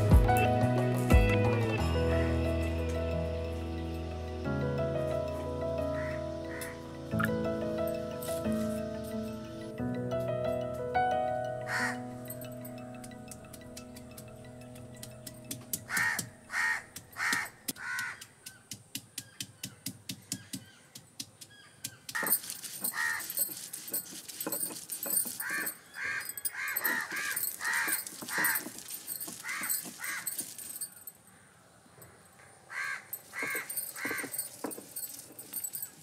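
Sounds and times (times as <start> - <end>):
crows cawing: 6.0 - 6.8, 11.7 - 12.1, 15.9 - 18.4, 22.1 - 23.3, 25.4 - 28.8, 29.4 - 30.4, 32.7 - 34.5.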